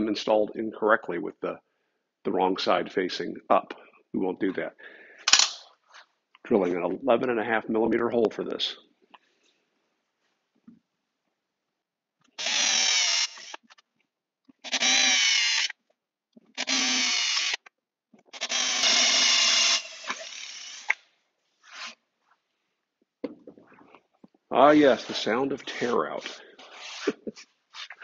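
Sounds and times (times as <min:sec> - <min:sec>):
cordless drill boring into plywood: 0:12.4 - 0:13.6, 0:14.6 - 0:15.7, 0:16.6 - 0:17.6, 0:18.3 - 0:21.0.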